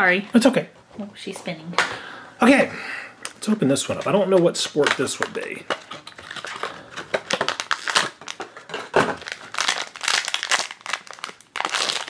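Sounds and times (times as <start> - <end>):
plastic wrapper crinkling: 3.7 - 12.0.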